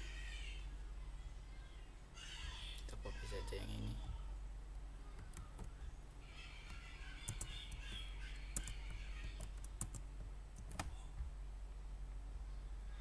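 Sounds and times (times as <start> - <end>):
faint high-pitched background sound: 0.0 - 13.0.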